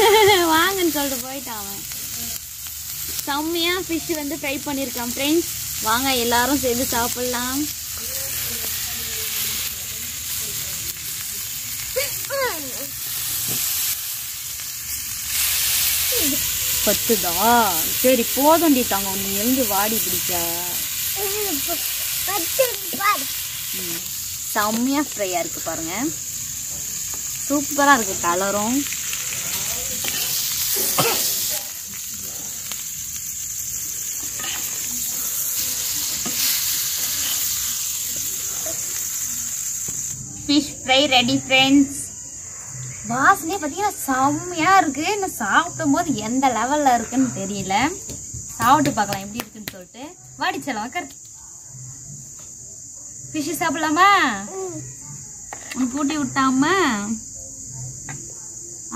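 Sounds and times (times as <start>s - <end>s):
fish sizzling in oil: 0.0s - 41.3s.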